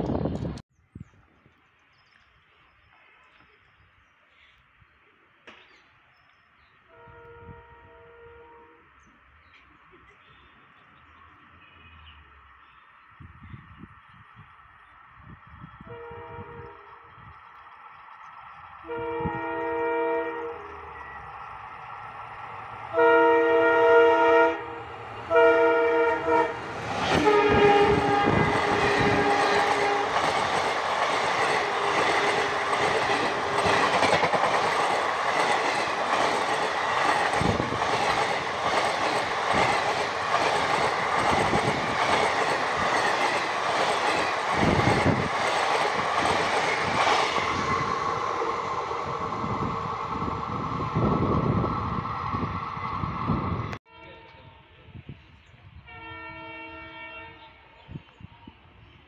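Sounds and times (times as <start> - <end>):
locomotive horn blasts: 6.9 - 8.9, 15.8 - 17.0, 18.8 - 21.1, 22.9 - 30.2, 53.9 - 54.7, 55.8 - 57.6
train wheels rushing on rails: 12.3 - 53.8.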